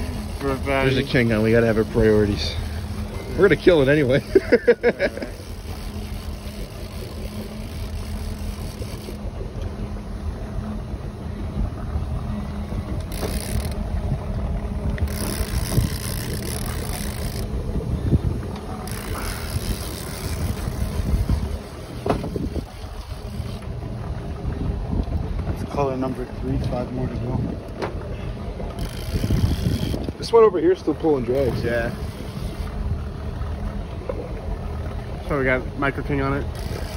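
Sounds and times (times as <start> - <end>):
boat engine humming: 0.0 - 36.9
wind gusts on microphone: 13.9 - 23.4, 24.1 - 32.1.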